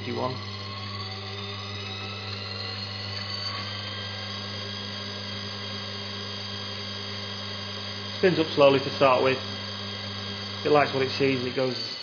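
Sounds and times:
balancing machine humming: 0.0 - 12.0.

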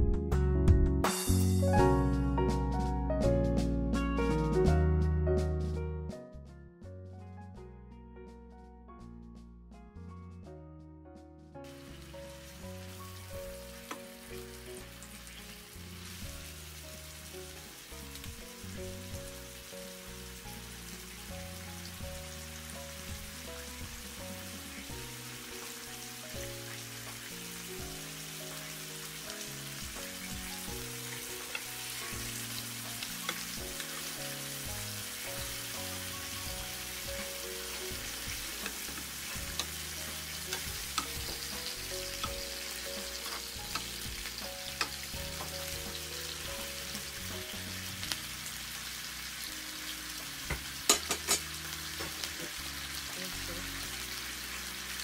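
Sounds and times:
soft background music: 0.0 - 55.0
meat sizzling on a grill pan: 11.7 - 55.0.

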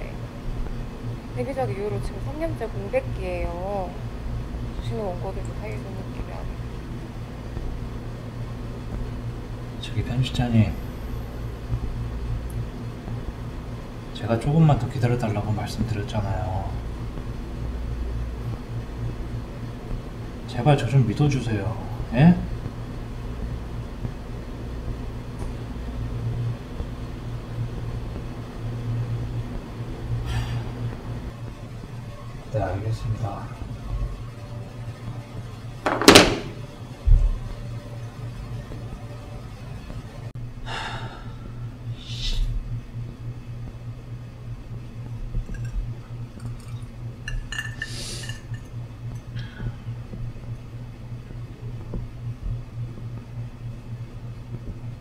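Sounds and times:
steady low hum: 0.0 - 55.0
drinking glass clinking: 45.5 - 49.3.

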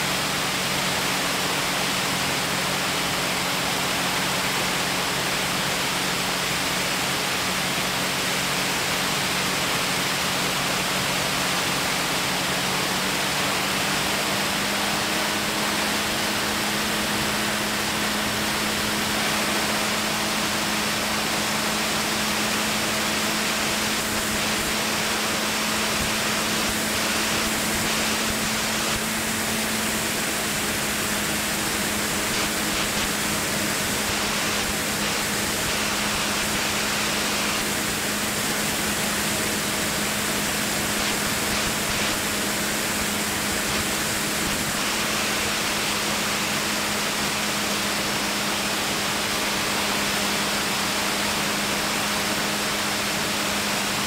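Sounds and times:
aircraft engine drone: 0.0 - 54.0
airflow rushing: 15.0 - 48.2.

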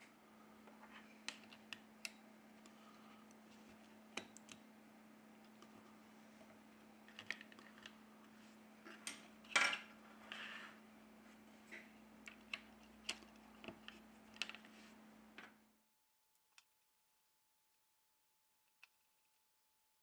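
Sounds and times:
low steady hum: 0.0 - 15.8.

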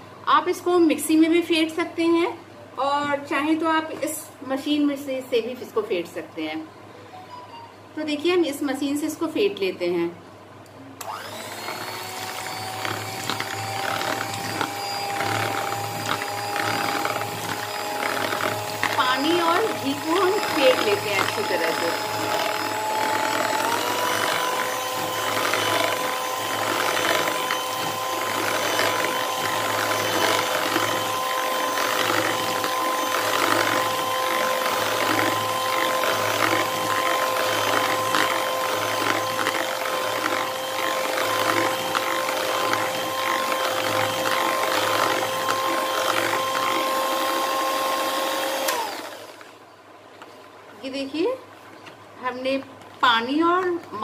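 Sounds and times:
electric hand mixer whining: 11.0 - 49.6
beaters churning in plastic bowl: 11.4 - 49.4.

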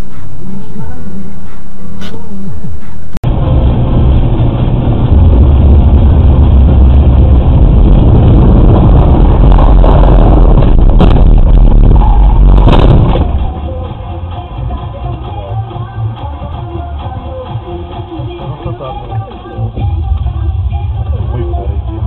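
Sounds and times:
car driving on wet road: 3.0 - 14.2.

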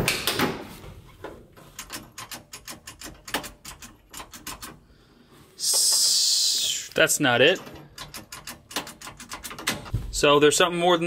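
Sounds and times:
small metallic clicks and rattles: 1.6 - 4.8, 6.9 - 9.9.

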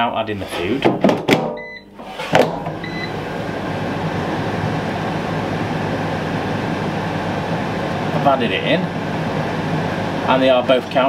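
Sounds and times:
air fryer fans running: 0.0 - 11.0
air fryer drawers knocking shut: 0.8 - 2.8
short beeps: 1.6 - 1.9, 2.8 - 3.1.

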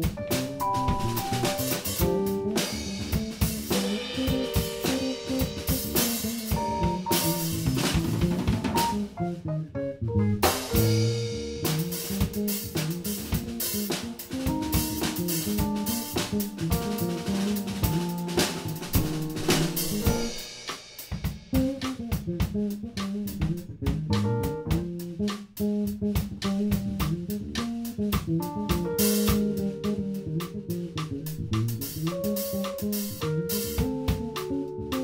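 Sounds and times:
bass line: 0.0 - 20.4, 21.5 - 35.0
keyboard: 0.0 - 20.4, 28.4 - 35.0
drum kit: 0.0 - 35.0.

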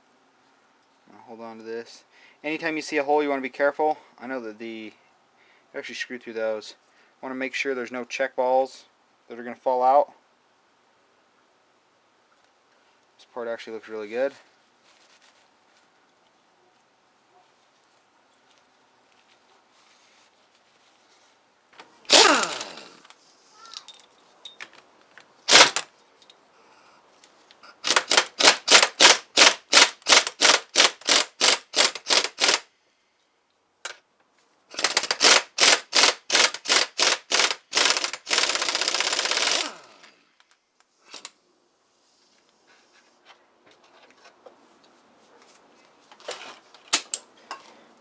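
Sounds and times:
air impact wrench hammering: 22.1 - 23.0, 27.8 - 32.7, 34.7 - 40.0.

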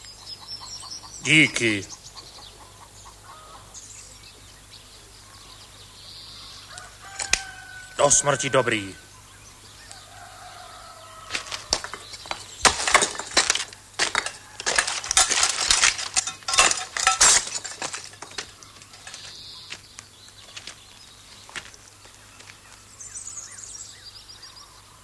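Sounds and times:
hard objects clinking and clattering: 11.3 - 19.4.

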